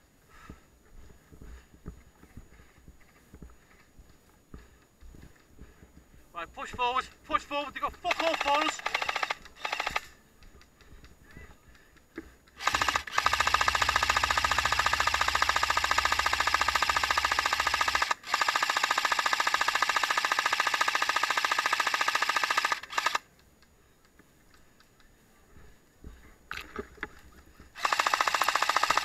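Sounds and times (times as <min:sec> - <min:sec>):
airsoft machine gun bursts: 0:07.3 - 0:10.2, 0:12.6 - 0:23.3, 0:27.8 - 0:29.0.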